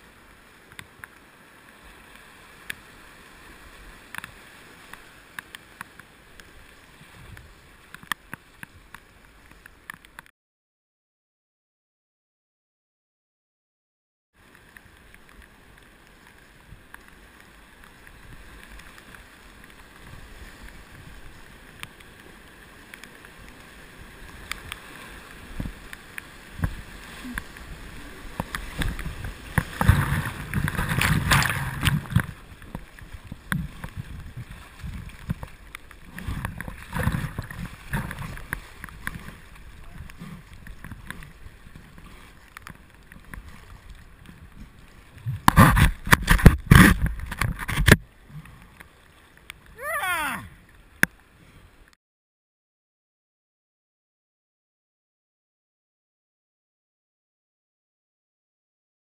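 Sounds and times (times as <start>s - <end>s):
paddle stroke splashes: 14.4s - 51.9s
whitewater rapids rushing: 49.8s - 50.5s.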